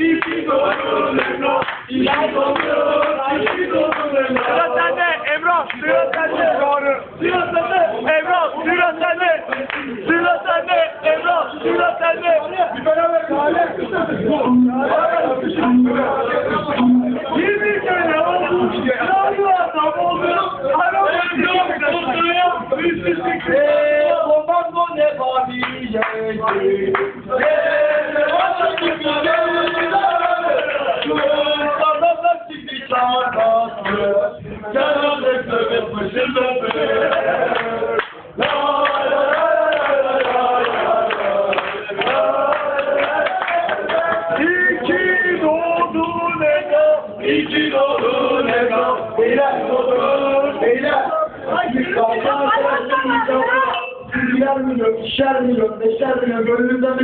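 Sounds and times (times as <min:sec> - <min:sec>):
man singing into a microphone: 0:10.0 - 0:37.6, 0:43.6 - 0:57.0.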